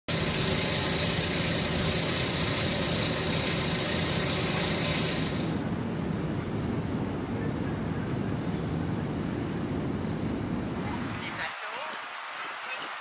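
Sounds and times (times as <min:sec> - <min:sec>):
engine humming at idle: 0:00.1 - 0:05.8.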